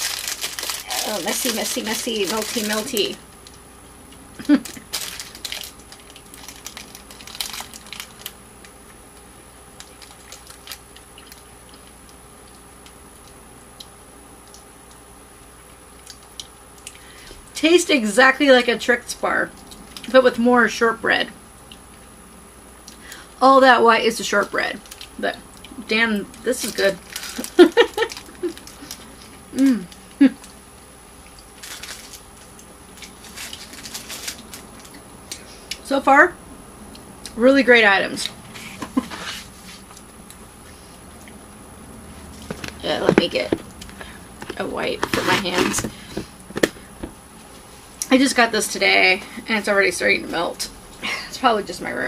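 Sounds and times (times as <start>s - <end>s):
crunchy caramel being chewed: 0.0s - 17.1s, 19.5s - 20.2s, 24.7s - 35.9s
woman humming mmm: 29.5s - 30.4s.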